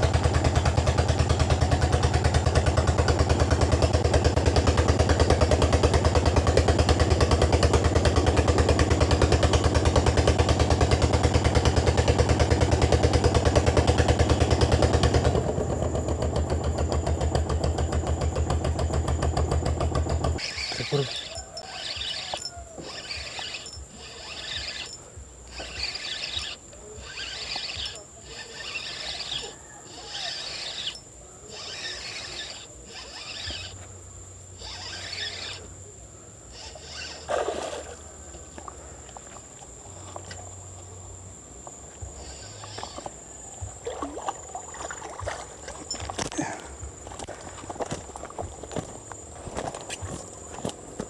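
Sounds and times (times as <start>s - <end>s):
fishing reel winding: 20.4s - 33.8s, 34.6s - 35.7s, 36.5s - 37.4s, 42.2s - 43.2s.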